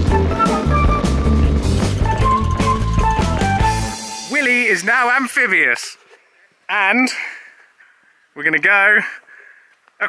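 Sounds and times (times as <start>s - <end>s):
background music with bass line: 0.0s - 4.6s.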